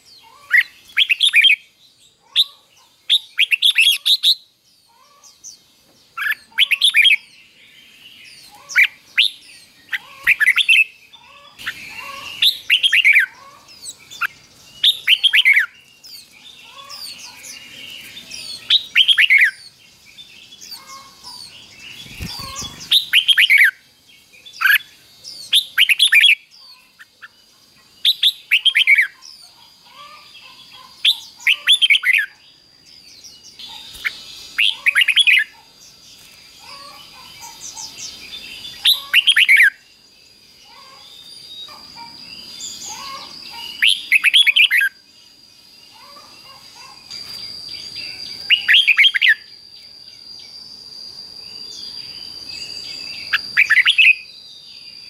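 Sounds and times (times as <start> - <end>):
bulbul whistled song: 11.6 - 16.3, 20.7 - 23.8, 42.9 - 45.0, 47.1 - 55.0.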